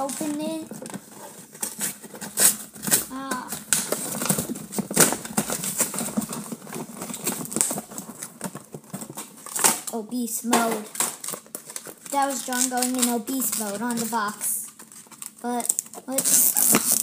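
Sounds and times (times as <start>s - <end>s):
box being ripped open: 1.6s - 8.0s, 16.2s - 17.0s.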